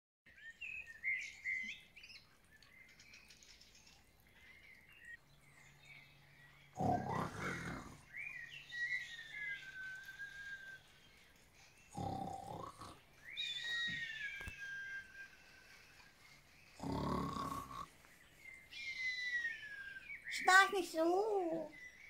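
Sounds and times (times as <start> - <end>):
birds chirping: 0.3 - 22.0
person snoring and whistling: 6.8 - 8.0, 11.9 - 13.0, 16.8 - 17.9.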